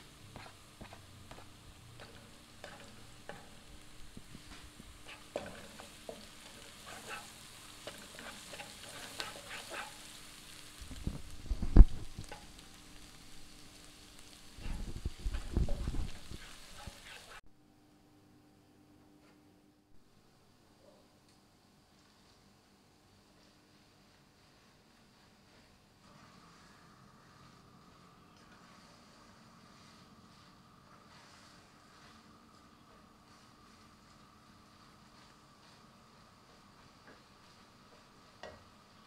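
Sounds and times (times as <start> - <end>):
garlic sizzling in oil: 0.0 - 17.4, 23.8 - 39.0
spatula scraping and knocking pan: 0.3 - 12.7, 14.5 - 17.4.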